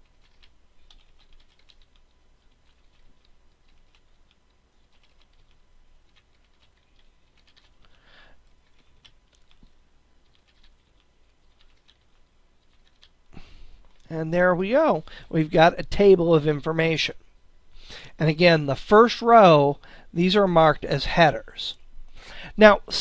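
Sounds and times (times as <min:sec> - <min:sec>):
keyboard typing: 0:00.0 - 0:07.8, 0:08.6 - 0:13.2.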